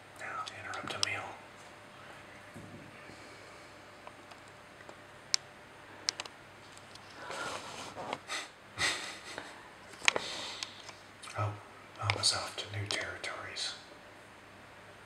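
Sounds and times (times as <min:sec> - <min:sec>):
sharp clicks: 0:04.2 - 0:07.0, 0:12.0 - 0:13.2
short noisy breaths: 0:07.1 - 0:11.0.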